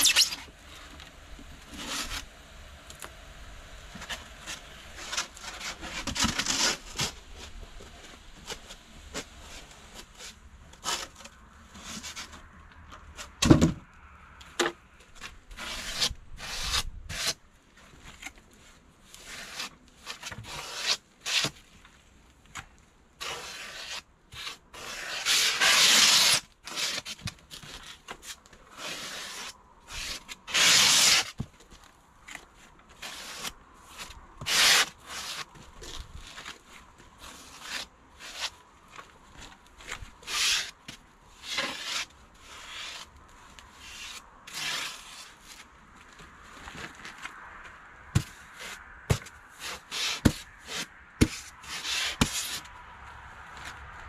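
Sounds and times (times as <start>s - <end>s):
foam board scraping: 0.0s - 1.0s, 1.6s - 2.4s, 3.9s - 13.8s, 14.6s - 52.7s
thump: 13.4s - 13.8s.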